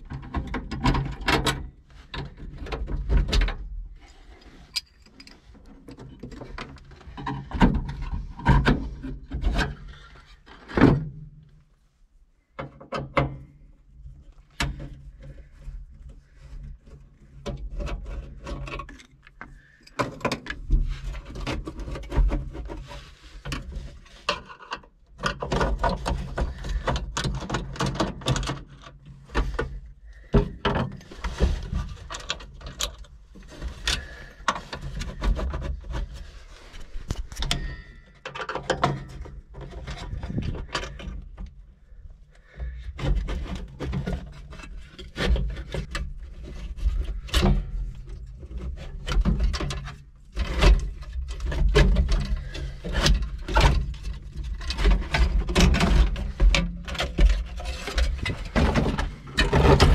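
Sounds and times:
metal clicks and scrapes: 0:04.0 - 0:10.8, 0:43.0 - 0:59.9
low rumbling handling noise: 0:51.7 - 0:59.9.

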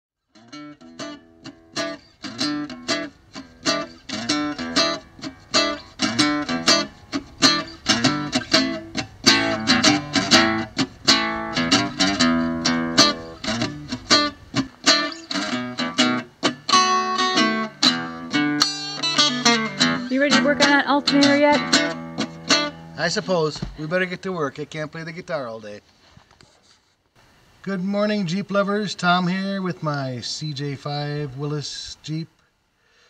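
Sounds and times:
acoustic guitar playing: 0:00.3 - 0:24.4.

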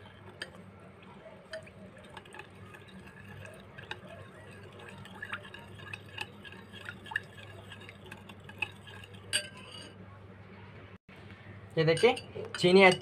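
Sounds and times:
spoon clinking against glass: 0:01.5 - 0:10.0, 0:11.9 - 0:13.0.

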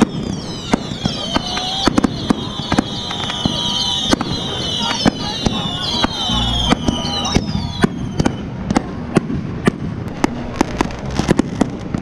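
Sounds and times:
firework whistles sliding down: 0:00.0 - 0:08.6
fireworks bangs and cracks: 0:00.0 - 0:12.0.

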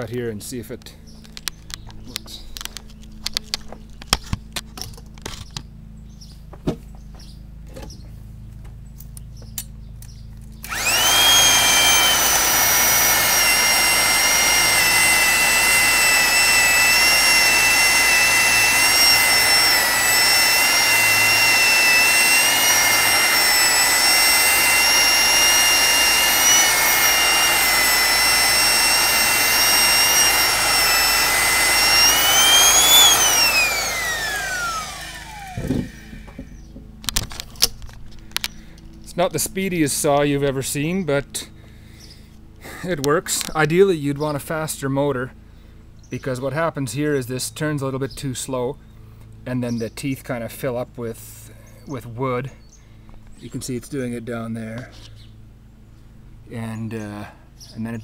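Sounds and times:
electric chainsaw cutting log: 0:10.6 - 0:38.0.

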